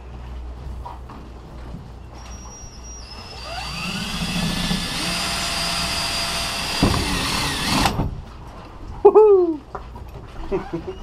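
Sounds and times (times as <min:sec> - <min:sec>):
cordless drill whining: 0:02.2 - 0:08.0
drill boring through plastic: 0:02.3 - 0:08.0.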